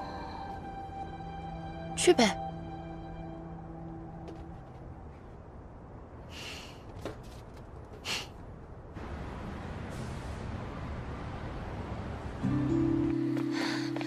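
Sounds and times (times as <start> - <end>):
soft background music: 0.0 - 5.1, 12.4 - 14.0.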